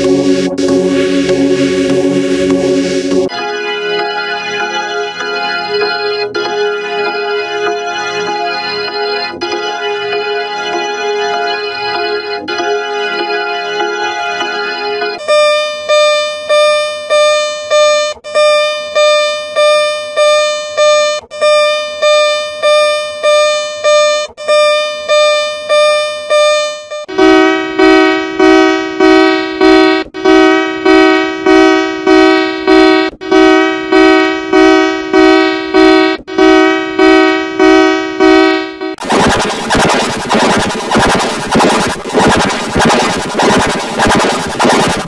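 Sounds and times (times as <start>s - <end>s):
distorted electronic alarm beeping: 15.2s - 36.2s, 37.1s - 45.0s.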